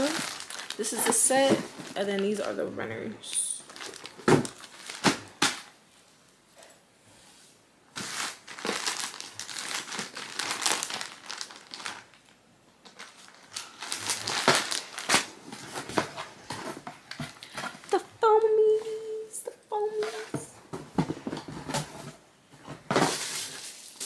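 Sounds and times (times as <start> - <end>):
plastic bag crinkling: 0.0 - 2.6, 3.2 - 5.7, 8.0 - 15.8.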